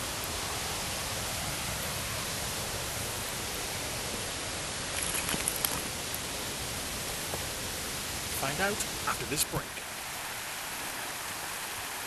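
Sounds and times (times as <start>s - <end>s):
outdoor background hiss: 0.0s - 12.0s
faint clicks and rustles: 4.9s - 6.2s.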